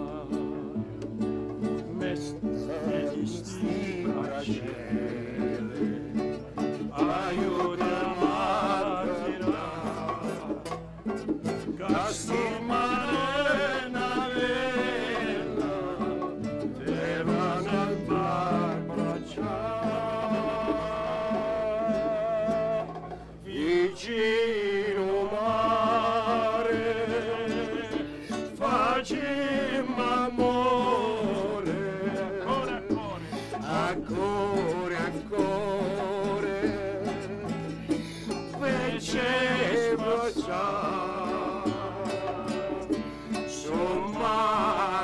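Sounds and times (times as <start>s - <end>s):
classical guitar playing: 0.0s - 45.0s
man singing with vibrato: 0.0s - 45.0s.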